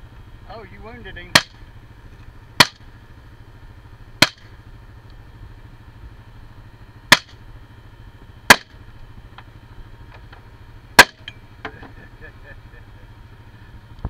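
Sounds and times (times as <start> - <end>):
steady low hum: 0.0 - 14.0
rifle shots: 4.2 - 4.5, 8.5 - 8.7, 11.0 - 11.2.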